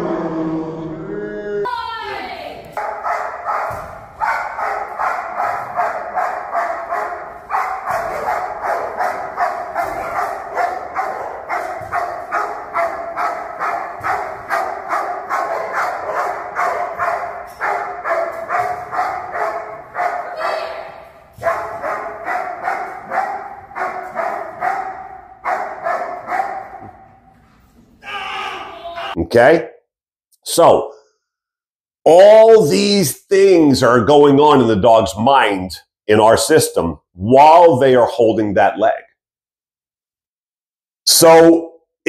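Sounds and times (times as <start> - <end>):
dog barking rapidly: 2.8 - 27.0.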